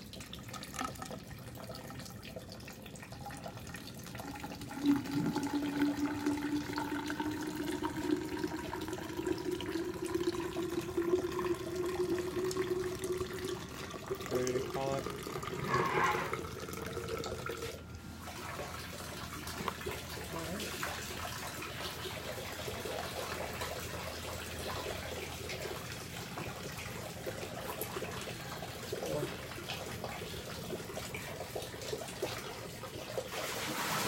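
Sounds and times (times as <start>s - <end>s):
water trickling: 0.0s - 34.0s.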